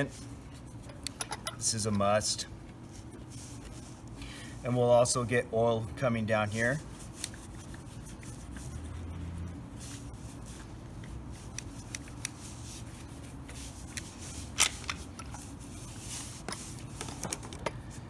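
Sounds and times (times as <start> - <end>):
cloth rag wiping plastic: 2.7 - 17.3.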